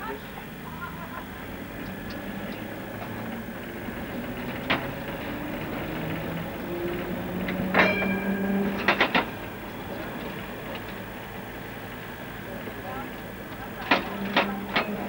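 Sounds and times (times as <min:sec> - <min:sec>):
tram running along track: 0:00.0 - 0:15.0
metal clank with ring: 0:07.7 - 0:09.4.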